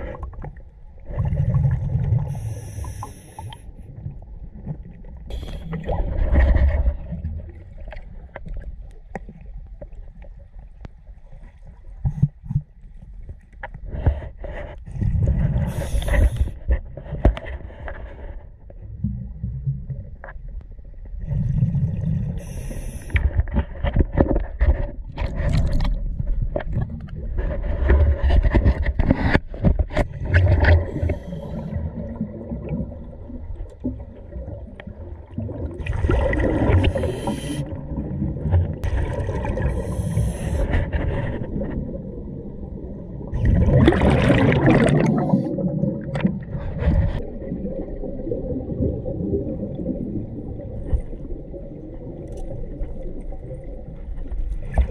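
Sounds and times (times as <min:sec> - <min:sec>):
scuba regulator breathing and bubbles: 0:00.0 - 0:09.2, 0:13.6 - 0:20.4, 0:21.0 - 0:54.9
low underwater rumble: 0:00.0 - 0:54.9.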